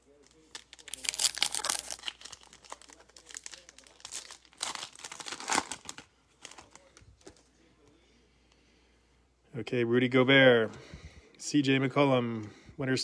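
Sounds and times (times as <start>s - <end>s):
foil wrapper crinkling: 0.1s - 7.4s.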